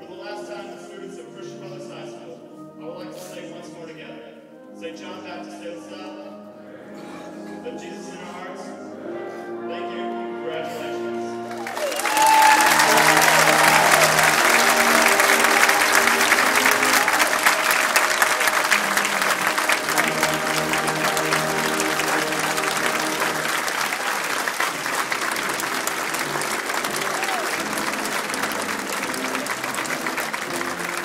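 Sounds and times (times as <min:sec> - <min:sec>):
music with held notes: 0:00.0 - 0:31.0
audience applauding: 0:11.4 - 0:31.0
crowd cheering: 0:11.5 - 0:31.0.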